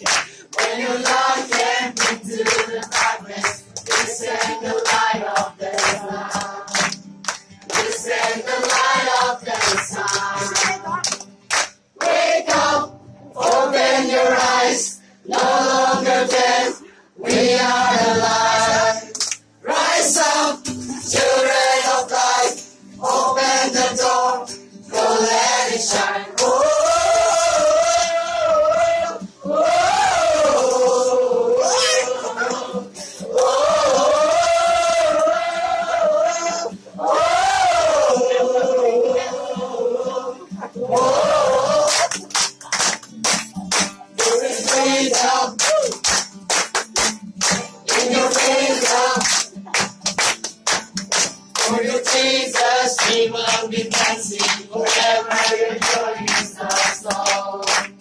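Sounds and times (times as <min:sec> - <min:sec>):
young voices singing together: 0:00.0 - 0:07.1, 0:07.7 - 0:11.1, 0:12.0 - 0:42.9, 0:44.2 - 0:45.7, 0:47.8 - 0:49.5, 0:51.6 - 0:58.0
hand-clapping: 0:00.0 - 0:16.6, 0:19.1 - 0:23.2, 0:25.9 - 0:26.7, 0:33.3 - 0:34.5, 0:41.8 - 0:58.0.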